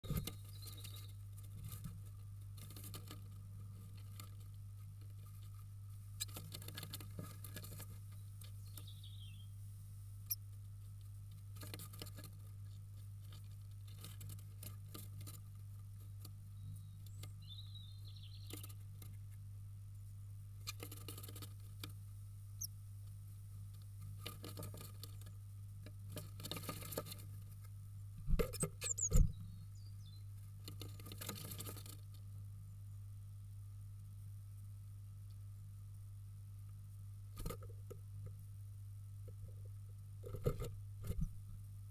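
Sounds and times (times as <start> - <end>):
faint high bird chirps: 0.0 - 1.2, 8.1 - 9.6, 16.5 - 18.7, 28.6 - 30.3
wings fluttering: 0.0 - 8.9, 20.6 - 22.0, 24.0 - 25.4, 26.1 - 29.4, 30.6 - 32.2
steady low hum: 0.0 - 41.9.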